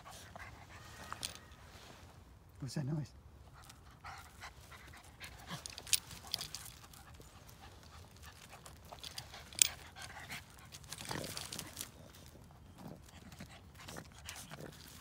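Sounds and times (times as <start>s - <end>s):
small dog panting: 3.5s - 15.0s.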